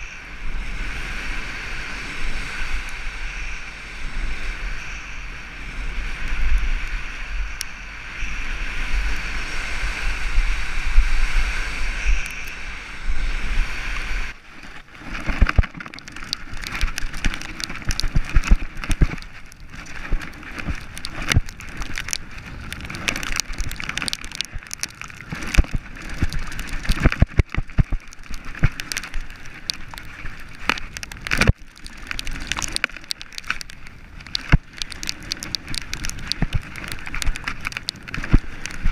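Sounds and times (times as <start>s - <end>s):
wind rushing over camera: 0.0s - 38.9s
bike clattering on rough trail: 14.5s - 38.9s
bike frame rattling: 14.6s - 38.9s.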